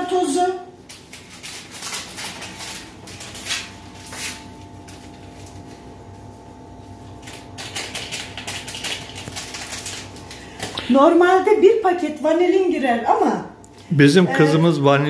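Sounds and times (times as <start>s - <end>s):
faint steady hum: 0.0s - 15.0s
packets crinkling and crackling: 0.8s - 5.7s, 7.2s - 10.9s.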